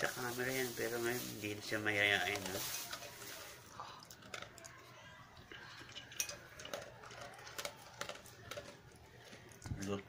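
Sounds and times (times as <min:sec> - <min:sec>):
dog crunching kibble: 0:00.0 - 0:10.0
kibble clicking on metal bowl: 0:05.6 - 0:10.0.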